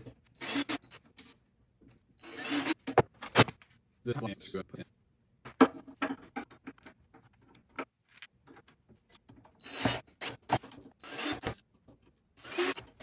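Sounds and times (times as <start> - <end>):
cordless drill driving screw: 0.4 - 1.0, 2.2 - 2.8, 9.6 - 11.6, 12.4 - 13.0.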